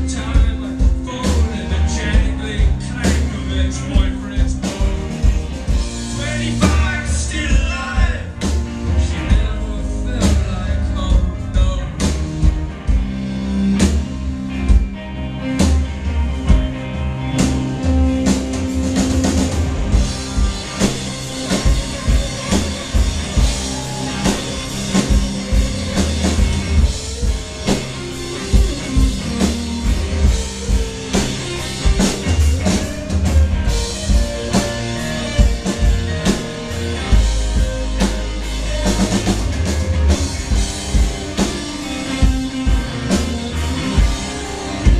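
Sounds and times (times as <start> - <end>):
rock band playing: 0.0 - 44.9
person singing: 6.0 - 12.1.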